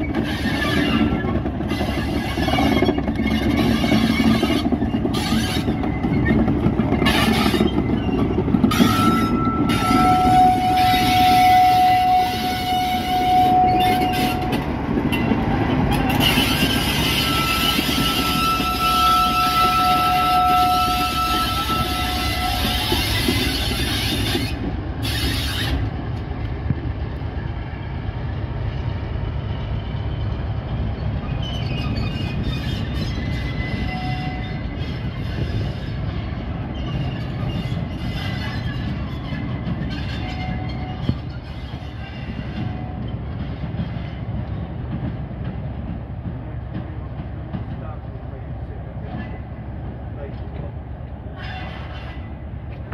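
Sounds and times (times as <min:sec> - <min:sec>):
high-pitched wheel squeal: 0:00.0 - 0:15.3, 0:15.9 - 0:25.9, 0:31.0 - 0:36.0, 0:36.7 - 0:43.1
diesel locomotive engine passing: 0:00.0 - 0:52.9.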